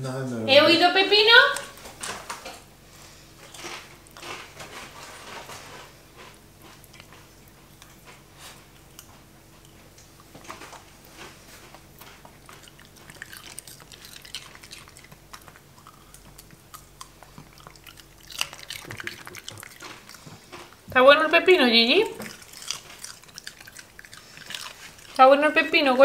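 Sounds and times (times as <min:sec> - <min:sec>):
dog chewing crunchy cucumber: 0:03.1 - 0:26.0.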